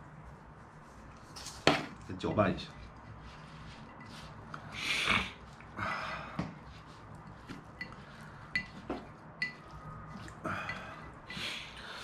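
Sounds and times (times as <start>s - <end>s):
hands mixing food in a glass dish: 0.6s - 4.7s, 6.5s - 12.0s.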